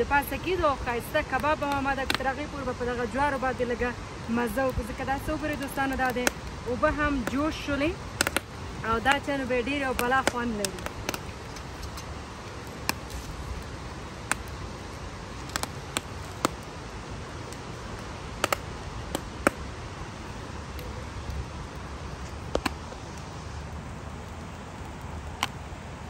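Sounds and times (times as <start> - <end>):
low hiss of embers: 0.0 - 26.0
corn popping and crackling: 4.7 - 19.7.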